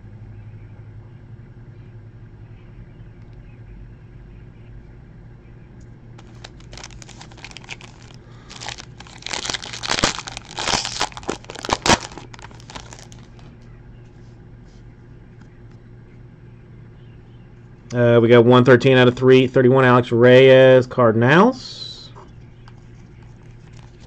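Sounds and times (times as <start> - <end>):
low steady hum: 0.0 - 24.0
foil wrapper crackling: 6.2 - 13.5, 23.2 - 24.0.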